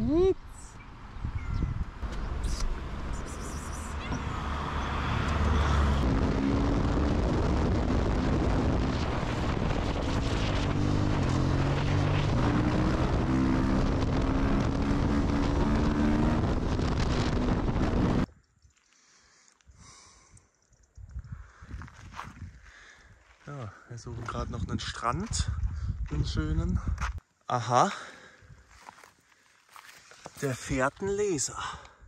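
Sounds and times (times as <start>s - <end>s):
wind buffeting microphone: 0.0s - 18.3s, 20.9s - 22.9s, 24.0s - 27.2s.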